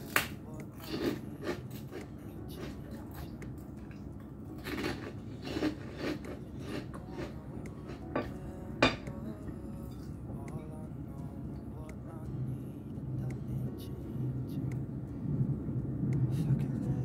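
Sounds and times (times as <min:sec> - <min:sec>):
person chewing crunchy food: 0:00.0 - 0:08.5.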